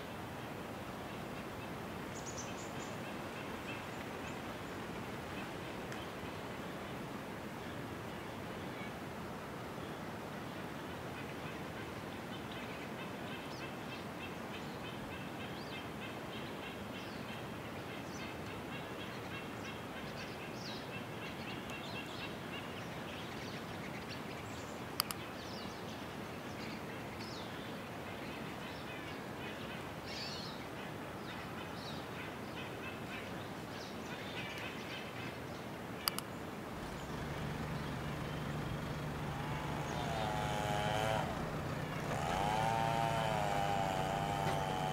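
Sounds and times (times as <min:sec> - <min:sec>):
background hiss: 0:00.0 - 0:44.9
sharp clicks: 0:25.0 - 0:25.2, 0:36.0 - 0:36.3
birds chirping: 0:33.9 - 0:44.9
low engine hum: 0:36.7 - 0:44.9.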